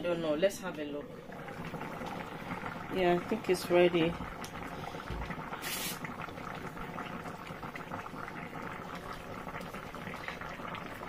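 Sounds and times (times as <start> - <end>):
soup boiling and bubbling: 0.0 - 11.0
burst of hiss: 5.6 - 6.0.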